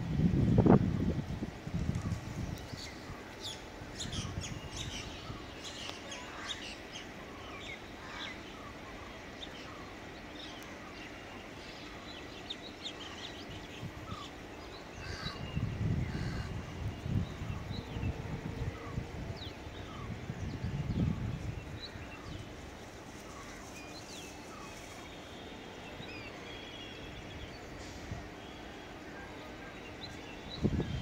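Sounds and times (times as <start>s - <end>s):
outdoor background noise: 0.0s - 31.0s
birds chirping and calling: 2.0s - 18.1s.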